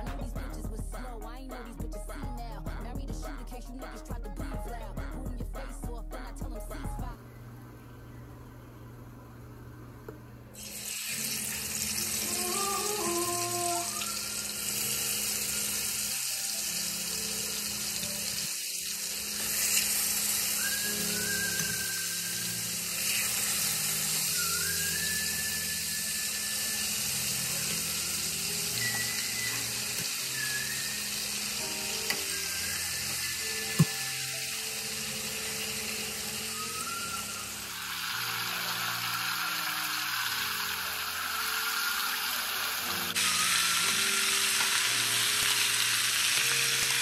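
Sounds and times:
background music: 0.0s - 7.2s, 10.6s - 47.0s
chicken sizzling in oil: 10.6s - 47.0s.

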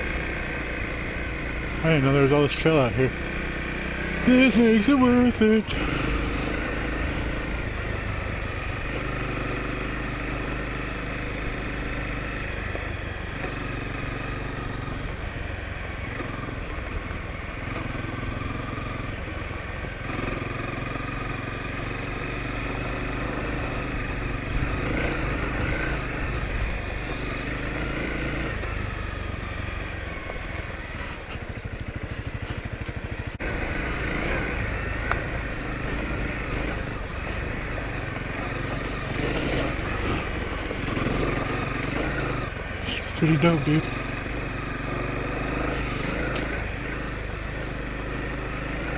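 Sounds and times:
motorcycle engine running: 0.0s - 48.9s.

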